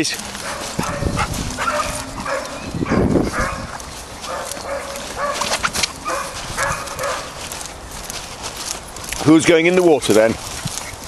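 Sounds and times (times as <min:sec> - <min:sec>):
dog yapping: 0:00.4 - 0:07.5.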